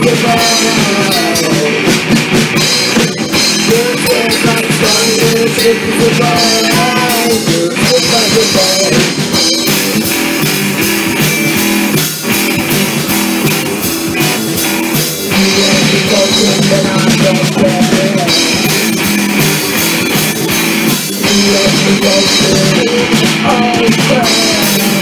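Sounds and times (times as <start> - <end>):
lead vocal singing: 0.0 - 2.2, 2.9 - 9.9, 14.9 - 19.1, 20.9 - 25.0
drum kit: 0.0 - 25.0
electric guitars: 0.0 - 25.0.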